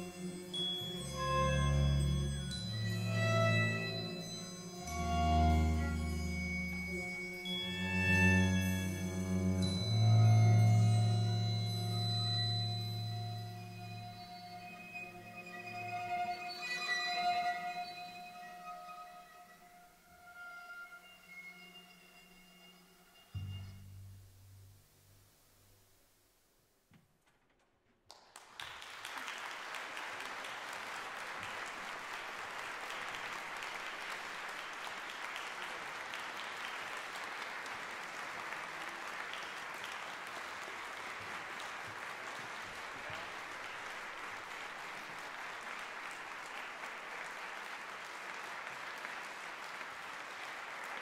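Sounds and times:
audience applause: 0:28.1 - 0:51.0.

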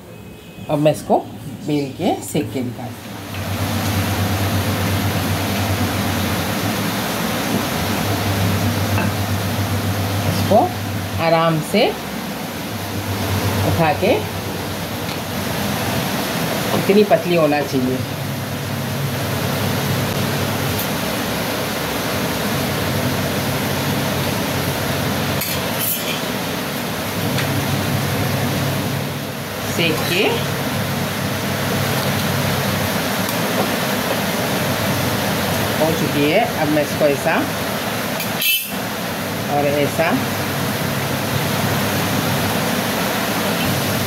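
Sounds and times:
gas burner rushing hum: 0:00.9 - 0:44.0
low constant hum: 0:01.0 - 0:21.3.

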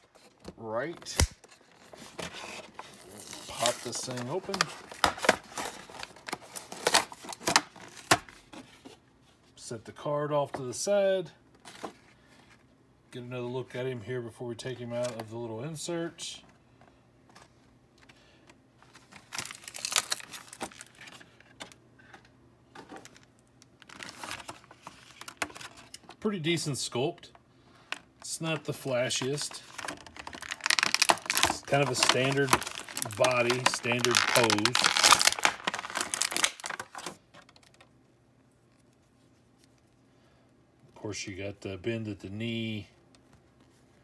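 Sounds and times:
plastic crinkling and crackling: 0:18.9 - 0:21.3, 0:29.0 - 0:37.9.

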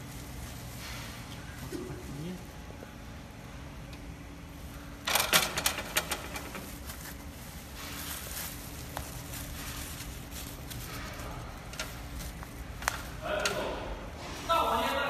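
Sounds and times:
faint steady hum: 0:00.0 - 0:15.0
plastic film crinkling: 0:05.8 - 0:13.3.

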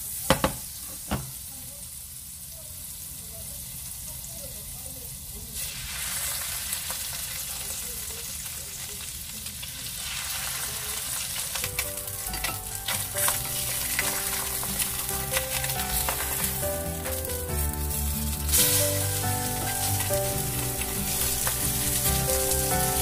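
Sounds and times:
fish sizzling in a frying pan: 0:00.0 - 0:23.0
wooden spatula scraping a pan: 0:11.6 - 0:23.0.

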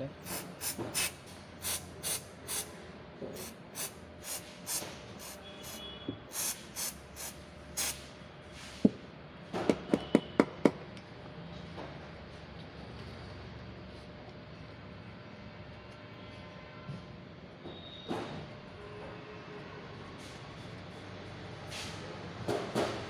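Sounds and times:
aerosol spray hissing: 0:00.2 - 0:02.7, 0:03.4 - 0:08.1.

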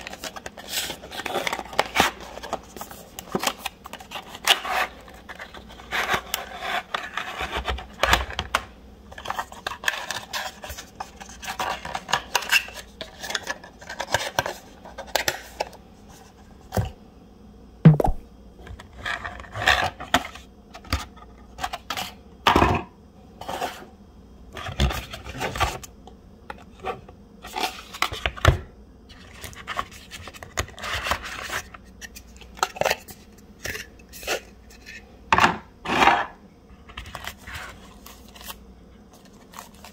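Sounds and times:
sharp knock: 0:17.9 - 0:18.2
packaging being handled: 0:37.0 - 0:39.9.

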